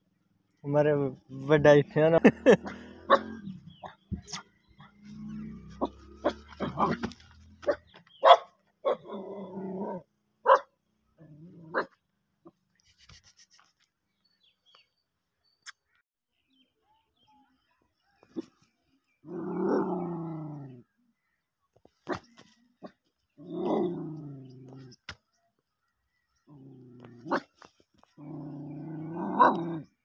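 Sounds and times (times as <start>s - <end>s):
small dog barking: 3.0s - 4.0s, 5.8s - 9.2s, 10.4s - 10.7s, 27.2s - 27.5s, 29.3s - 29.8s.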